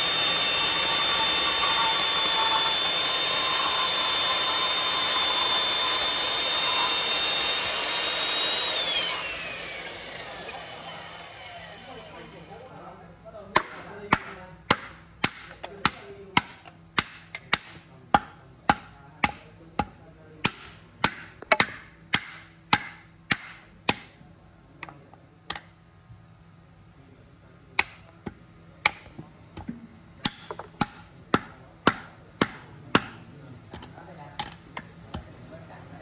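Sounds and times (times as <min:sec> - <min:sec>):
hatchet chopping wood: 0:13.6 - 0:24.2, 0:27.8 - 0:33.2.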